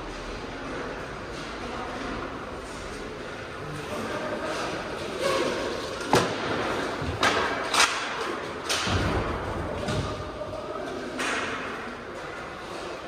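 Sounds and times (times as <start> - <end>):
hockey sticks cracking on puck: 4.5 - 9.2, 10.9 - 12.8.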